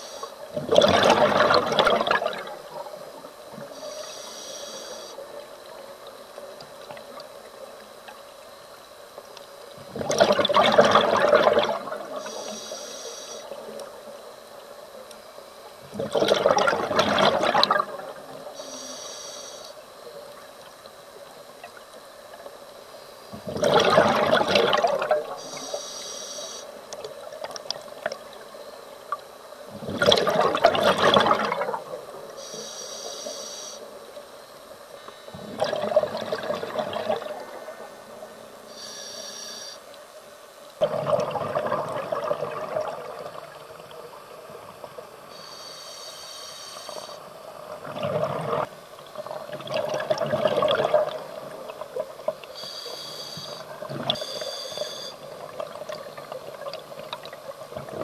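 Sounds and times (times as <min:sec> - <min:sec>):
regulator inhalation hiss: 0:00.0 - 0:00.5, 0:03.7 - 0:05.3, 0:12.1 - 0:13.8, 0:18.4 - 0:19.8, 0:25.4 - 0:26.8, 0:32.3 - 0:34.0, 0:37.4 - 0:39.9, 0:45.2 - 0:47.3, 0:52.5 - 0:55.3
exhaled bubbles rushing: 0:00.6 - 0:02.9, 0:09.9 - 0:12.2, 0:15.9 - 0:18.3, 0:23.4 - 0:25.4, 0:29.7 - 0:32.0, 0:35.4 - 0:37.5, 0:40.8 - 0:43.9, 0:47.7 - 0:52.2.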